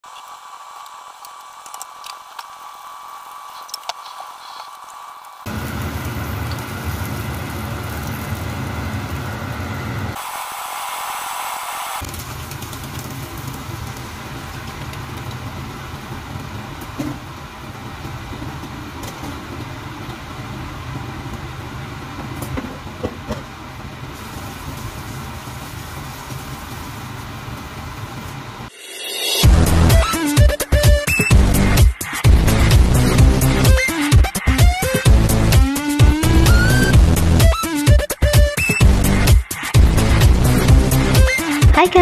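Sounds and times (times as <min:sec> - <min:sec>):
sizzling in a frying pan: 0:00.0 - 0:23.0, 0:23.6 - 0:29.4
low mechanical hum: 0:00.1 - 0:10.2.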